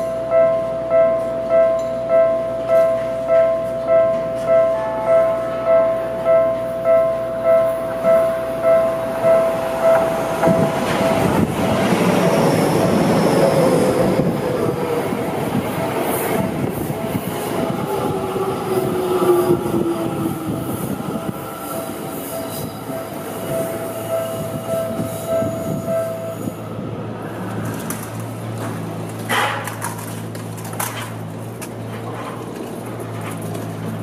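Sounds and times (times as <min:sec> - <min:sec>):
level-crossing warning bell: 0:00.0 - 0:26.6
electric train passing: 0:00.0 - 0:34.0.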